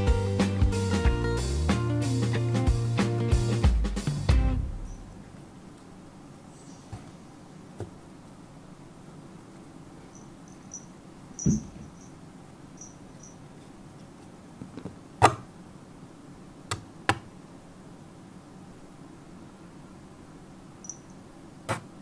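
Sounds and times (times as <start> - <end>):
faint high chirping: 4.8 - 5.2, 6.4 - 7.6, 10.0 - 13.6, 20.7 - 21.3.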